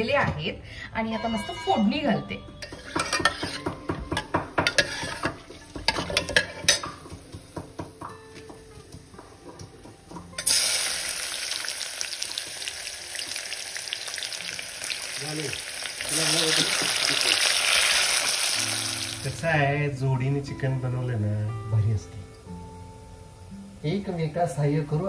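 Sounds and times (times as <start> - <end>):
onions sizzling in oil: 2.6 - 25.0.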